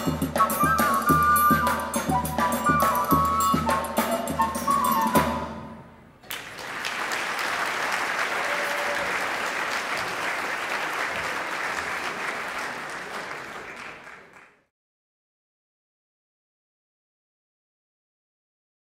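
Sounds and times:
audience applause: 6.2 - 14.7.

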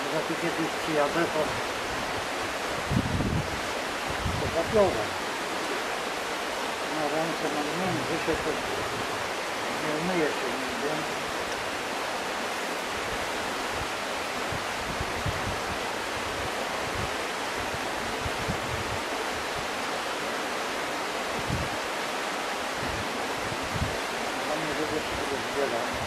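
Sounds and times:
flowing water rushing: 0.0 - 26.0
wind bumps on microphone: 1.4 - 5.2, 13.0 - 19.7, 21.3 - 21.8, 22.8 - 24.0.

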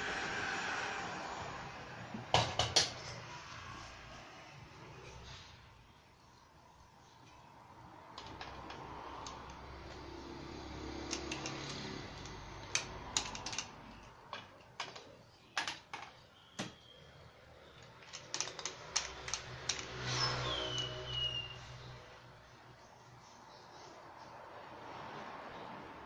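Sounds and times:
hard parts clicking and knocking: 8.0 - 16.8, 17.7 - 21.3.

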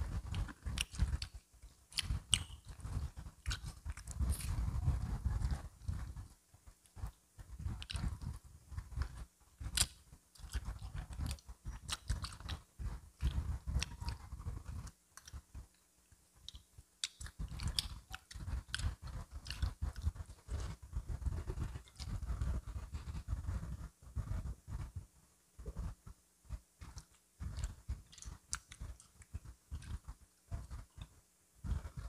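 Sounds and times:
person chewing crispy fried chicken: 0.3 - 4.6, 7.7 - 8.4, 9.0 - 15.4, 16.4 - 20.2, 26.8 - 30.1.

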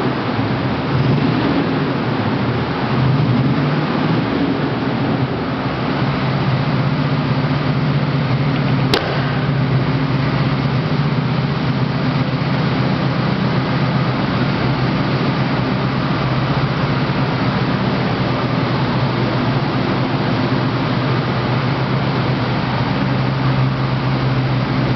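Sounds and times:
car engine idling: 0.0 - 24.9
sharp click: 8.6 - 9.6.

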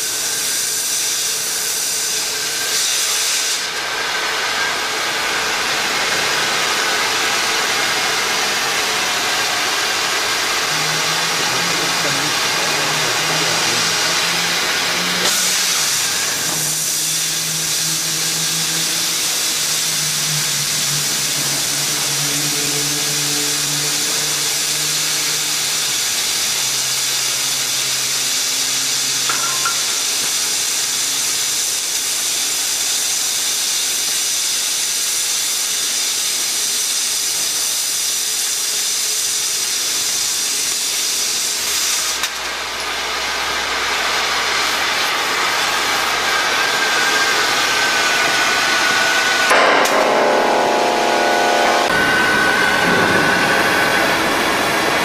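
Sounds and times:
plasma torch hissing: 0.0 - 4.1, 4.8 - 50.6
low machine hum: 49.5 - 55.0.

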